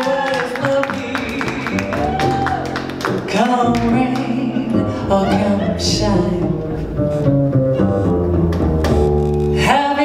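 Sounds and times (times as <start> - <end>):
woman singing jazz ballad: 0.0 - 6.9, 9.6 - 10.0
plucked double bass: 0.4 - 10.0.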